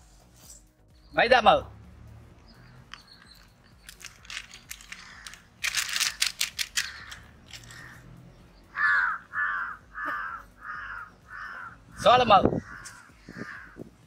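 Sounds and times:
sharp crackling clicks: 0:02.4 - 0:08.0
crow cawing: 0:04.7 - 0:13.9.

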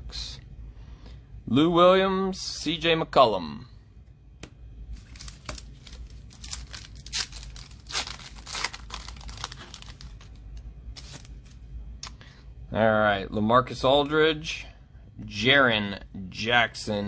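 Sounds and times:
foil pack crinkling and ripping: 0:05.0 - 0:11.6.

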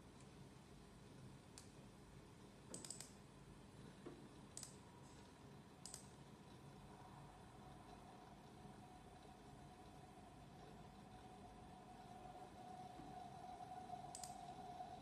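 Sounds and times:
computer mouse clicks: 0:01.5 - 0:01.8, 0:02.7 - 0:03.2, 0:04.5 - 0:06.2, 0:14.1 - 0:14.5.

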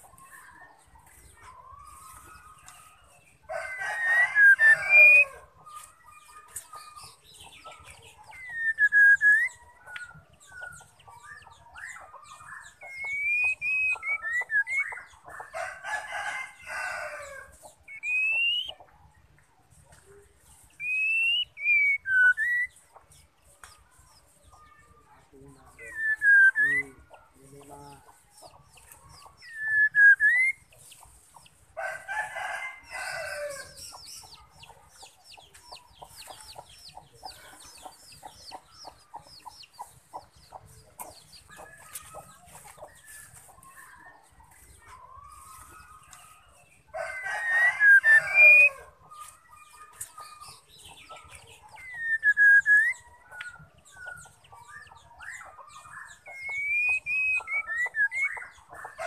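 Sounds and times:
rooster crowing: 0:03.4 - 0:05.5, 0:15.6 - 0:17.5, 0:31.8 - 0:33.8, 0:46.9 - 0:49.0
bird whistled calls: 0:08.3 - 0:10.1, 0:12.8 - 0:15.0, 0:17.9 - 0:18.8, 0:20.8 - 0:22.7, 0:25.8 - 0:26.9, 0:29.4 - 0:30.7, 0:51.8 - 0:55.4, 0:56.3 - 0:58.5.

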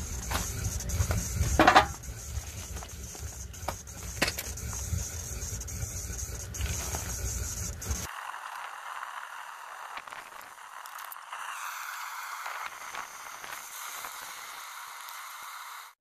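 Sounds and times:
wood fire crackling: 0:00.0 - 0:08.1.

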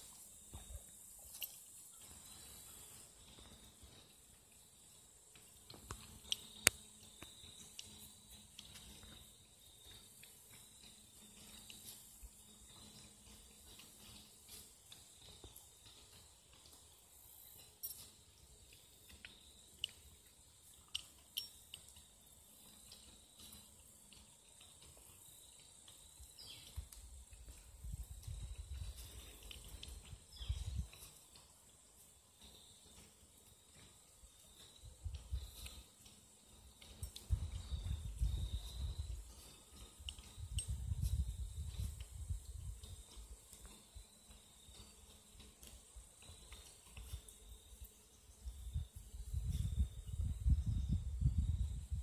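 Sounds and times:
crickets chirring: 0:00.0 - 0:52.0
high insect trill: 0:00.0 - 0:52.0
small clicks: 0:05.3 - 0:09.2.

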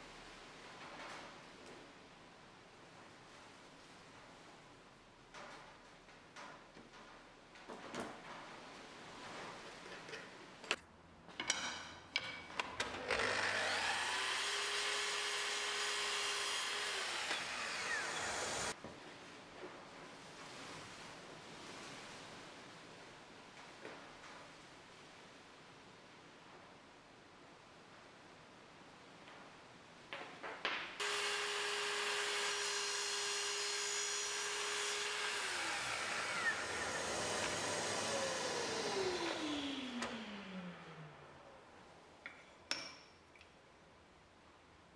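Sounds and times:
mitre saw cutting wood: 0:13.0 - 0:18.8, 0:31.0 - 0:41.2.

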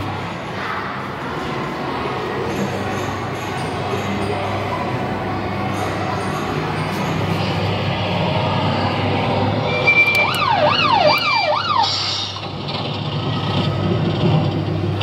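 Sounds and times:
electronic beep: 0:09.6 - 0:10.8
wailing siren: 0:09.6 - 0:12.4.

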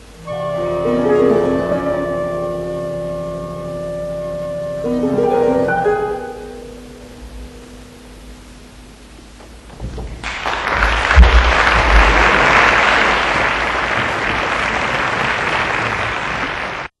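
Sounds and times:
audience applause: 0:10.2 - 0:17.0.

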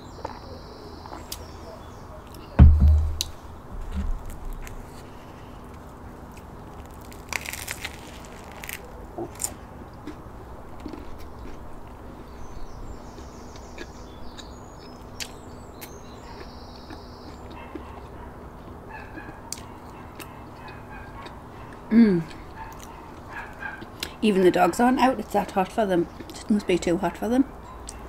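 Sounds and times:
bread crust crunching: 0:02.6 - 0:11.7
person chewing bread: 0:03.2 - 0:24.2.

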